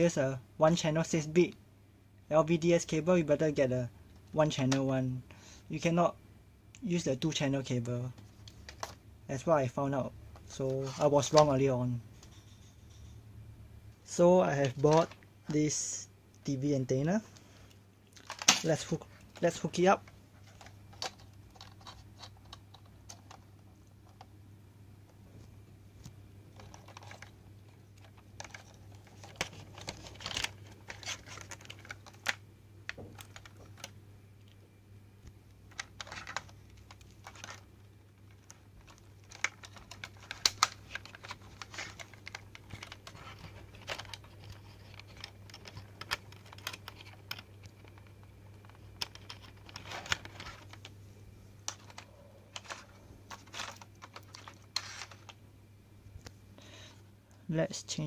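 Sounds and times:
steady low hum: 0.0 - 58.0
connectors plugging and cable rustling: 7.2 - 13.2, 14.0 - 24.4, 25.1 - 34.6, 35.2 - 55.4.

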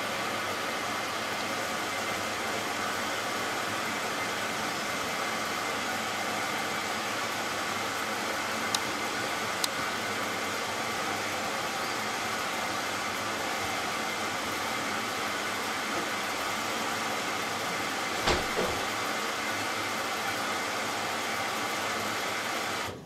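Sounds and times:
washing machine filling with water: 0.0 - 23.0
washing machine thump: 18.2 - 19.0.

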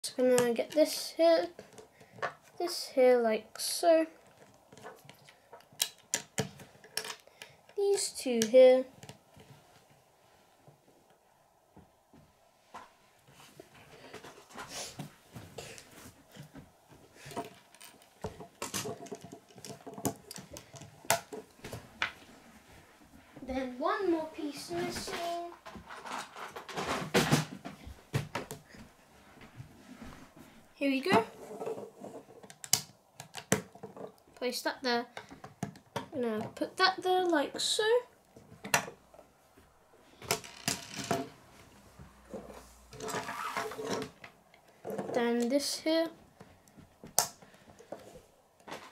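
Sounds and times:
plastic bricks clicking and rattling: 17.3 - 21.4
plastic bricks snapping together: 32.5 - 33.8, 47.2 - 47.4.

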